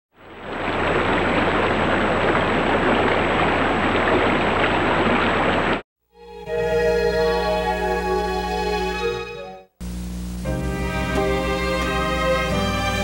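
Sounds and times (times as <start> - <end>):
stream water rushing over rocks: 0.2 - 5.8
sustained keyboard music: 6.1 - 9.7, 10.4 - 13.0.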